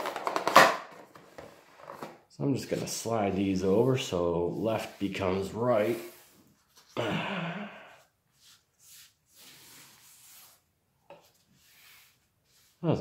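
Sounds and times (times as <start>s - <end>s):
person sighing: 6.9s - 8.1s
cards sliding on cloth mat: 8.3s - 10.7s, 11.3s - 12.8s.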